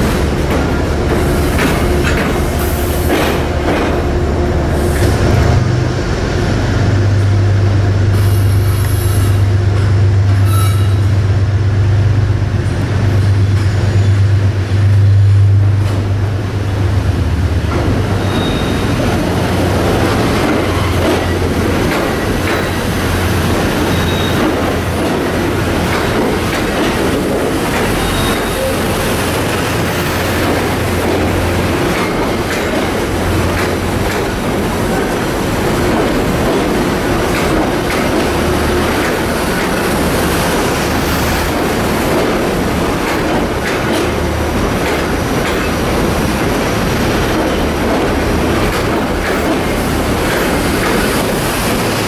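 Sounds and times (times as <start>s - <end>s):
train rumbling on rails: 0.0s - 52.0s
train wheel squeals: 10.4s - 11.1s, 18.2s - 19.0s, 20.5s - 21.5s, 23.8s - 24.6s, 27.8s - 29.2s.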